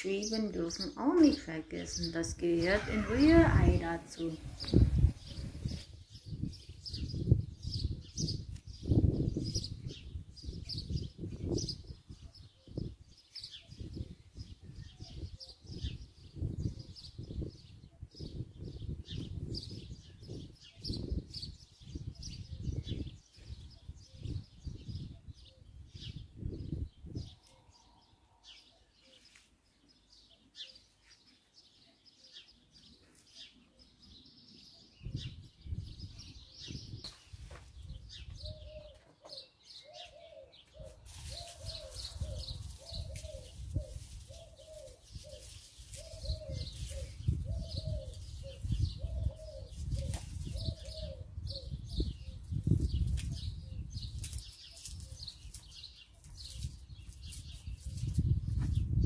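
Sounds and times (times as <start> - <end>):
birds chirping: 0.0 - 58.9
dove cooing: 38.4 - 52.4.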